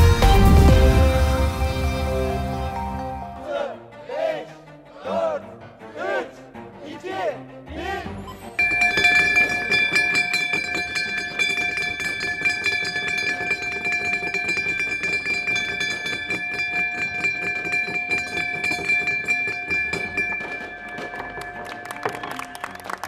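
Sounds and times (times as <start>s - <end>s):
gong ringing: 0.0s - 3.4s.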